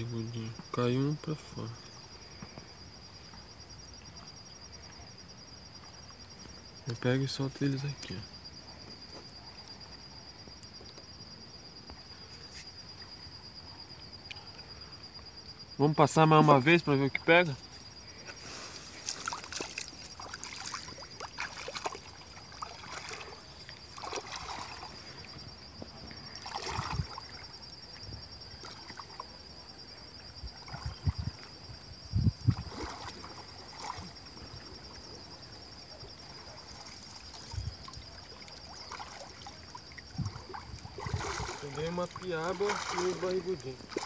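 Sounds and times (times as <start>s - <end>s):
high insect trill: 0.0s - 44.0s
water sloshing and splashing: 18.3s - 29.4s, 30.5s - 31.6s, 32.4s - 35.1s, 36.1s - 44.0s.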